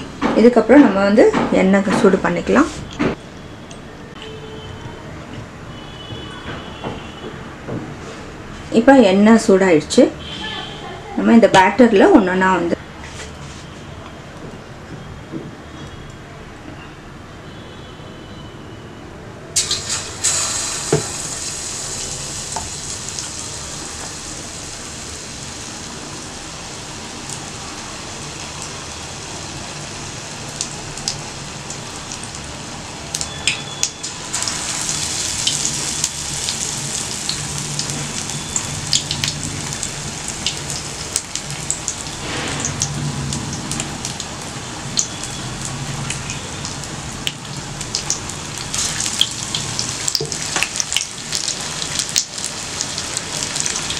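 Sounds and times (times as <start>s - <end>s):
food deep-frying in hot oil: 19.6s - 53.9s.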